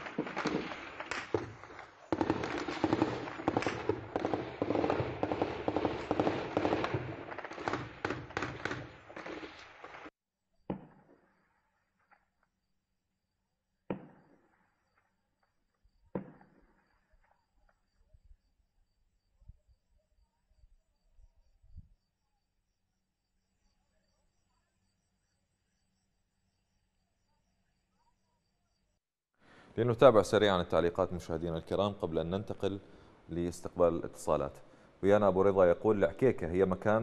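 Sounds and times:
rapid gunfire: 0:00.0 - 0:10.1
single gunshots with echo: 0:00.0 - 0:10.1.

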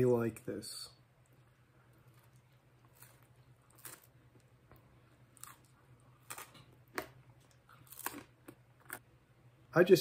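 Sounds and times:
chewing pizza crunches: 0:01.8 - 0:09.0.

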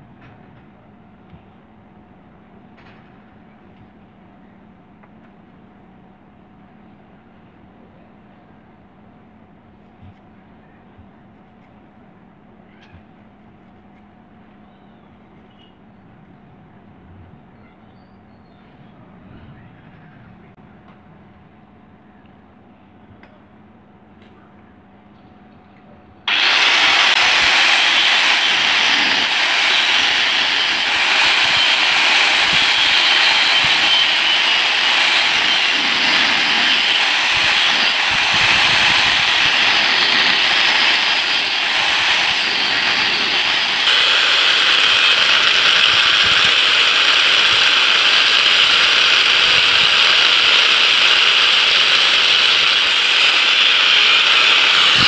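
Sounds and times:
angle grinder cutting metal: 0:26.3 - 0:55.0.

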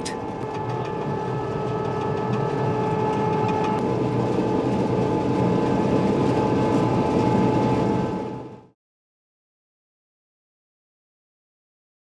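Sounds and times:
diesel engine running: 0:00.0 - 0:08.7
machinery whine: 0:00.0 - 0:08.8.

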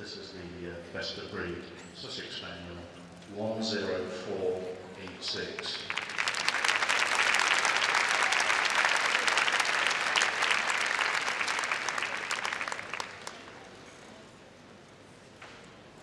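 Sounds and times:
audience applauding: 0:05.0 - 0:13.8.

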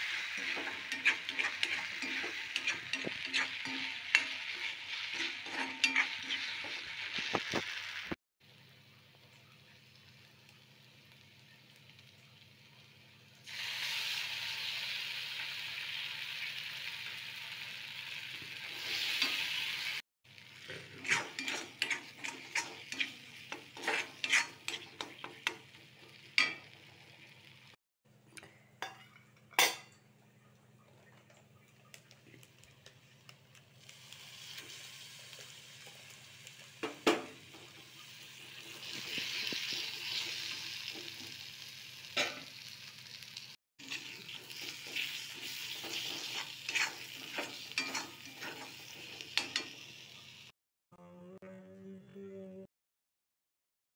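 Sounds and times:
spatula scraping metal pan: 0:00.0 - 0:07.0, 0:20.6 - 0:25.7, 0:43.8 - 0:49.7
paste sizzling in hot oil: 0:00.0 - 0:08.2, 0:09.9 - 0:27.8, 0:32.4 - 0:50.5.

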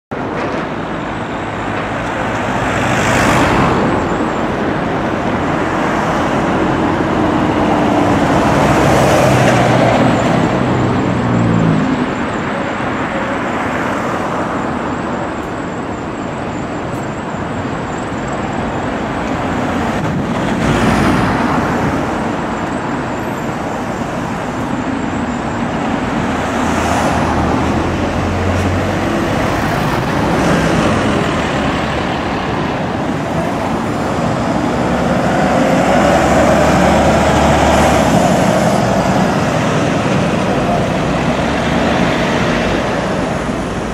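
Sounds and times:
bus engine accelerating: 0:00.1 - 0:43.9
bus engine humming: 0:00.1 - 0:43.9
cars passing: 0:00.1 - 0:43.9.

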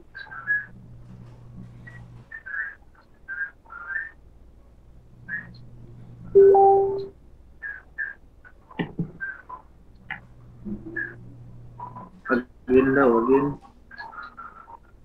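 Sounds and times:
faint low hum: 0:00.0 - 0:15.0
steady whistle-like tone: 0:06.3 - 0:07.1
high whistle-like chirps: 0:06.4 - 0:07.1.

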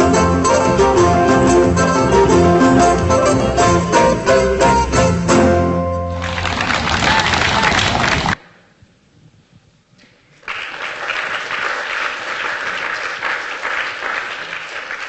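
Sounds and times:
audience applauding: 0:06.1 - 0:08.4, 0:10.4 - 0:15.0.

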